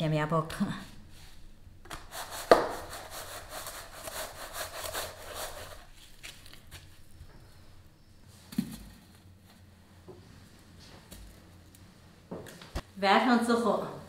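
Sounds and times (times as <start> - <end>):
bread crumbs rustling and scraping: 2.0 - 7.2.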